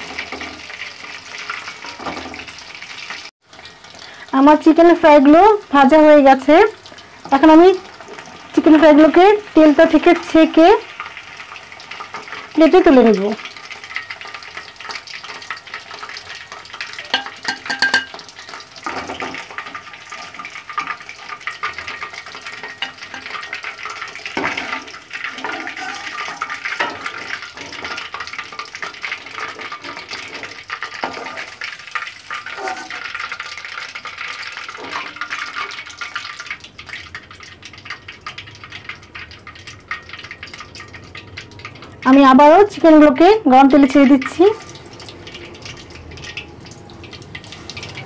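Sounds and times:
spoon scraping and knocking pan: 0.0s - 2.6s, 13.9s - 36.2s
chicken sizzling in hot oil: 0.0s - 48.0s.

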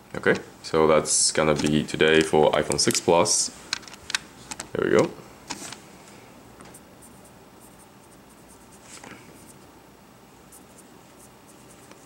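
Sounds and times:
marker pen scratching on mat: 10.5s - 12.0s.

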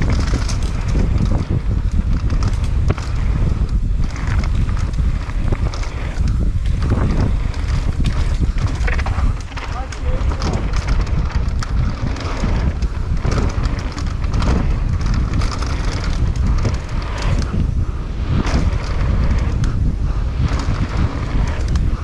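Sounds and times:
bike rattling over bumps: 0.0s - 22.0s
wind buffeting microphone: 0.0s - 22.0s.

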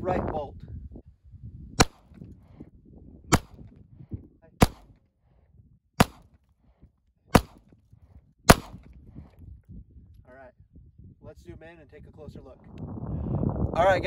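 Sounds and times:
pistol shots: 1.8s - 2.2s, 3.3s - 3.6s, 4.6s - 4.9s, 6.0s - 6.4s, 7.3s - 7.6s, 8.5s - 8.9s.

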